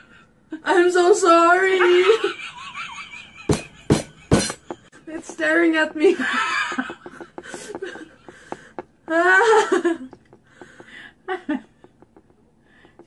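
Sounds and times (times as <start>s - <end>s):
woman laughing: 1.6s - 4.9s, 9.1s - 10.2s, 11.2s - 11.8s.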